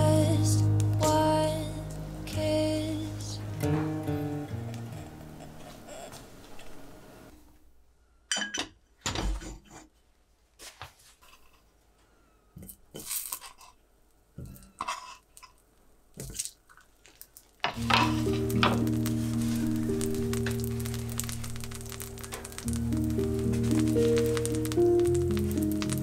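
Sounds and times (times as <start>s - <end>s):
background music: 0.0s - 5.7s, 17.8s - 26.0s.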